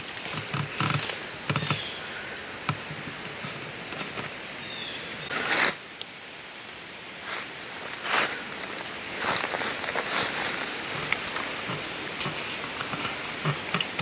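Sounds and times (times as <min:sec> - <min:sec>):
wind in trees: 0:00.0 - 0:14.0
footsteps on dry leaves: 0:05.3 - 0:05.8, 0:07.2 - 0:13.6.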